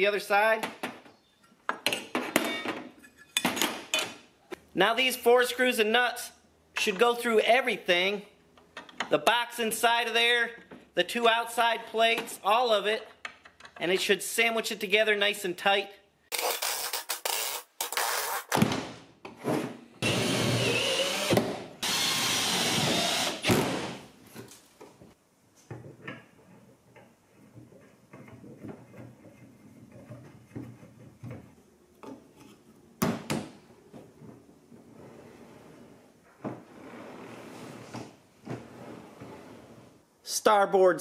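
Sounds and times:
power drill bursts: 0:20.0 - 0:24.0.

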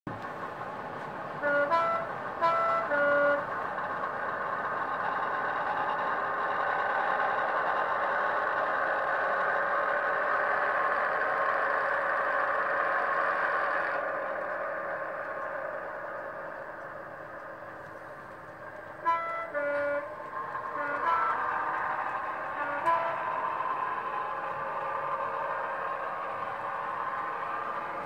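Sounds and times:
diesel engine sound: 0:00.1 - 0:28.0
two-tone diesel horn: 0:01.4 - 0:03.5, 0:19.0 - 0:23.3.

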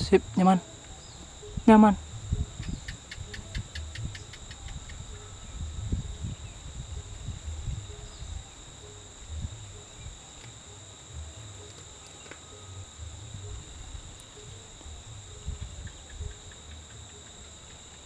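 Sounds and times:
insects droning: 0:00.0 - 0:18.0
low rumbling on microphone: 0:01.3 - 0:08.6, 0:09.2 - 0:10.3.

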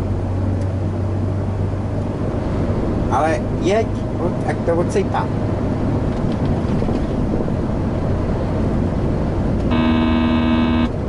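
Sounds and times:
car road and engine noise: 0:00.0 - 0:11.0
buzzing warning tone: 0:09.7 - 0:11.0.

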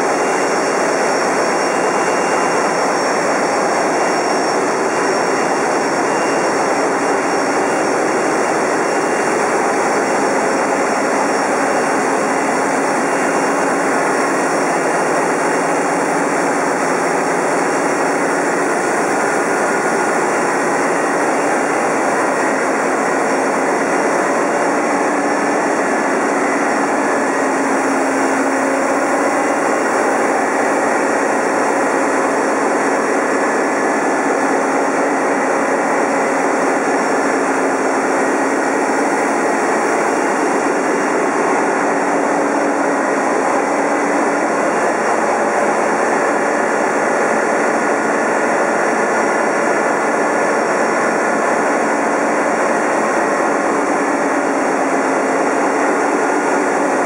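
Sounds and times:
marine diesel engines running: 0:00.0 - 0:57.0.

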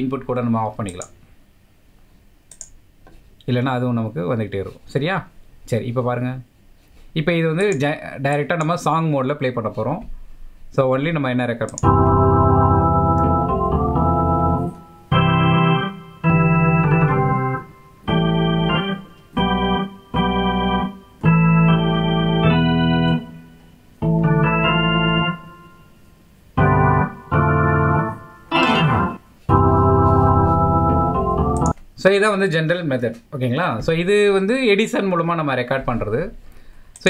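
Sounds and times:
electronic keyboard chords: 0:11.7 - 0:31.8.

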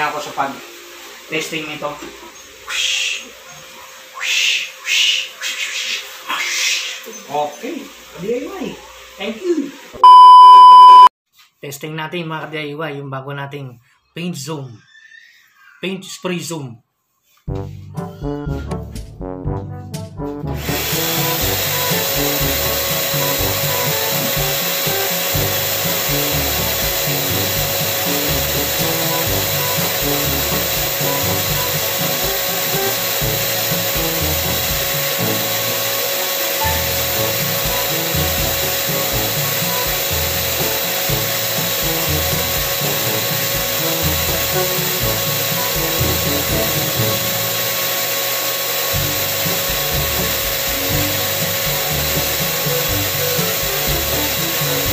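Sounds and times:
air hissing through spray gun: 0:20.6 - 0:54.9
paint sprayer motor whine: 0:20.6 - 0:54.9.

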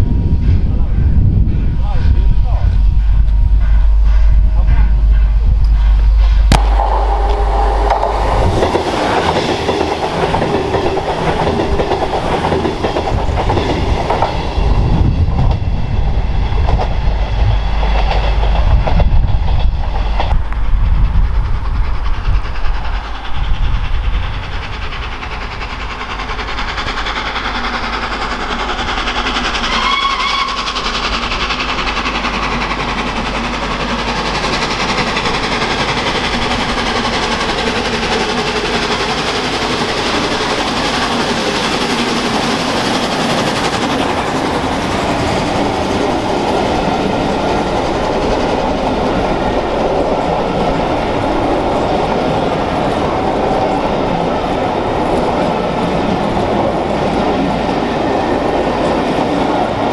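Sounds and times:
steam locomotive exhaust: 0:00.0 - 0:59.9
train whistle blast: 0:29.7 - 0:30.7.

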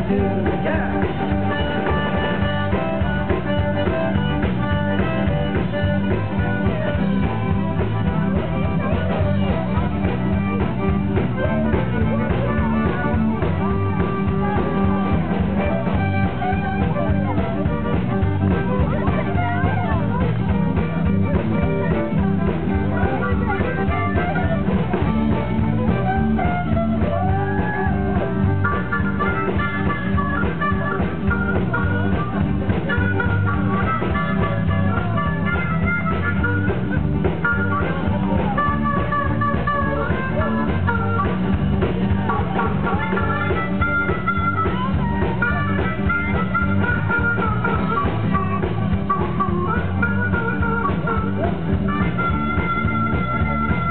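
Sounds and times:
live band with guitars: 0:00.0 - 0:53.9.

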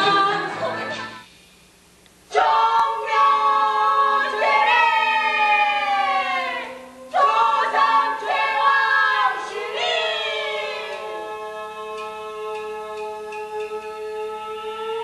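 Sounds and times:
group of voices chanting: 0:02.3 - 0:12.0.

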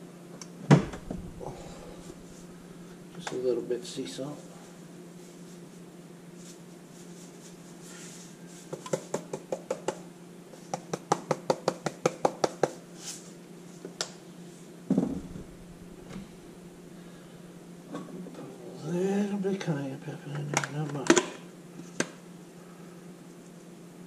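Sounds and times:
heavy thump: 0:00.7 - 0:03.2, 0:14.9 - 0:17.6.

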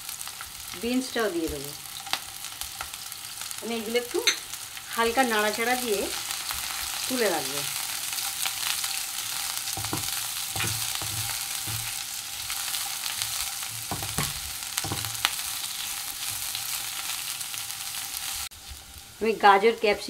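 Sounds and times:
vegetables sizzling in oil: 0:00.0 - 0:20.0
spatula scraping pan: 0:07.8 - 0:17.6.

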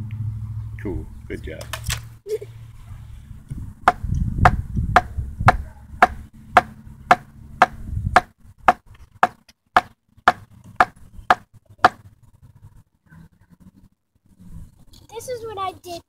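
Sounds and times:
hatchet chopping wood: 0:03.9 - 0:12.0.

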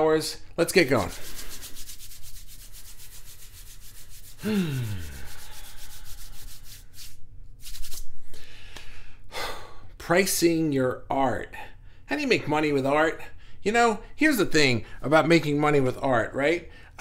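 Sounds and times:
hands rubbing together: 0:00.7 - 0:08.4
person humming: 0:04.4 - 0:06.2.

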